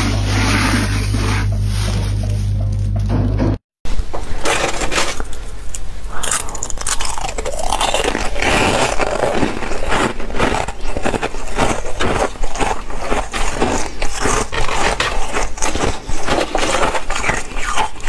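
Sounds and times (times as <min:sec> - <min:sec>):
ice crunching while chewed: 0:04.5 - 0:18.0.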